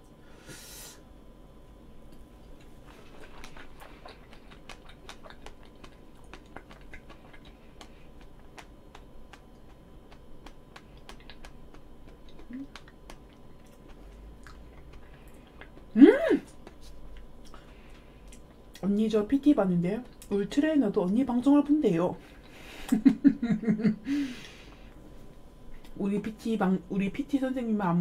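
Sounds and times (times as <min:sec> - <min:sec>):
wet chewing: 0:02.0 - 0:19.1.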